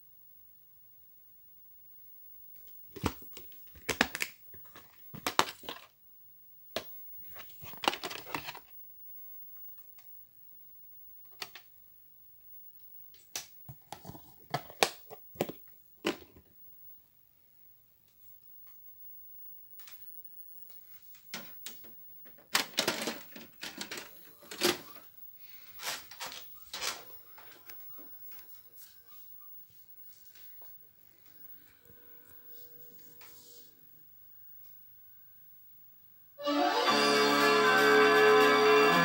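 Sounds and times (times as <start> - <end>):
plastic crackling and rustling: 2.6 - 5.9, 7.3 - 8.7, 21.0 - 28.6.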